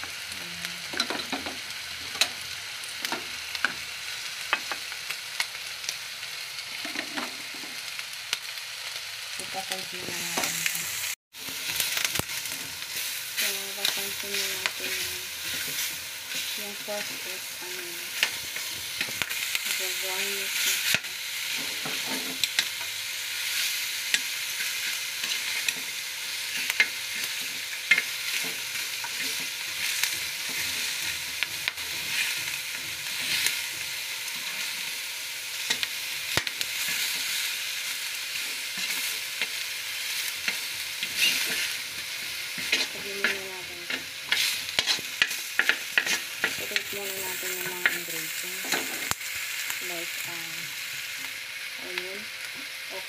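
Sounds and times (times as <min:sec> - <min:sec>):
meat sizzling in a pan: 0:00.0 - 0:53.0
tongs clicking and scraping metal: 0:26.5 - 0:34.6, 0:40.3 - 0:46.9.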